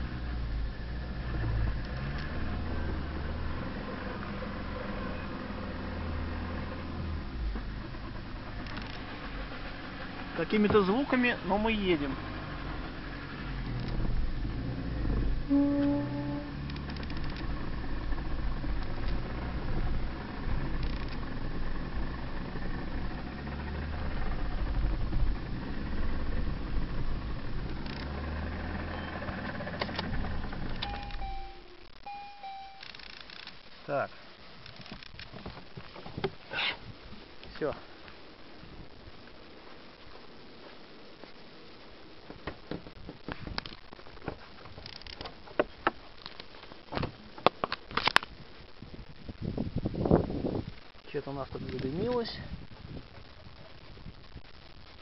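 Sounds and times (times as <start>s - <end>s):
car engine rumble: 0.0s - 55.0s
short electronic beeps: 28.9s - 29.2s, 30.8s - 33.0s.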